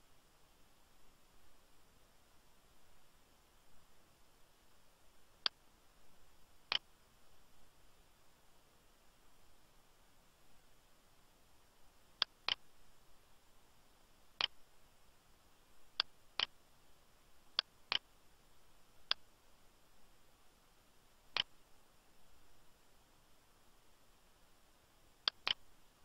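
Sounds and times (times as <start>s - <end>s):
faint steady hiss: 0.0s - 26.0s
mouse button clicking: 25.3s - 25.6s.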